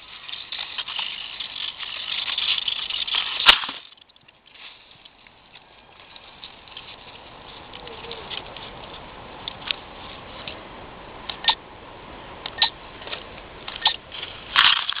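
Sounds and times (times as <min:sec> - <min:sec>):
grass and twigs scratching camera: 0:00.0 - 0:10.6.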